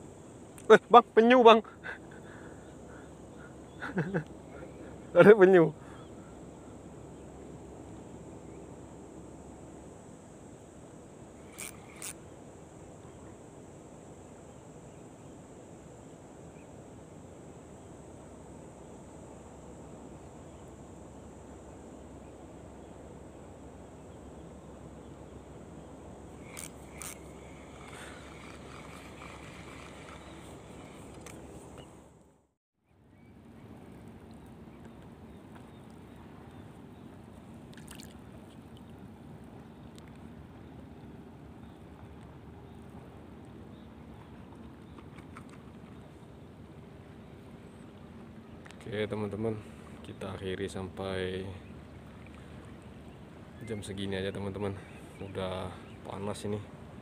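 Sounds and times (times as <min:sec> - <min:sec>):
outdoor background hiss: 0:00.0 - 0:57.0
water lapping against boat hull: 0:37.7 - 0:39.0, 0:51.8 - 0:53.4.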